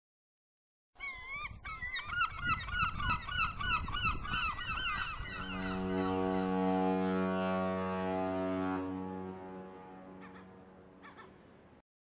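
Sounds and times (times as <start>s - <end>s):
flock of birds calling: 1.0s - 6.8s, 10.0s - 11.4s
ship's horn blast: 5.2s - 11.1s.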